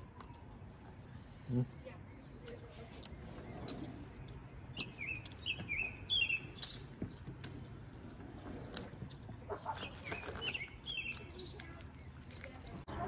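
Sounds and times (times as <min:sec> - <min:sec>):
small songbird chirping: 0:03.0 - 0:12.8.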